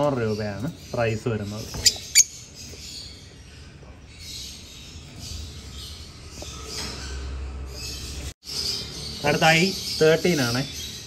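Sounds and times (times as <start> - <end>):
caged birds chirping: 0.0 - 11.0.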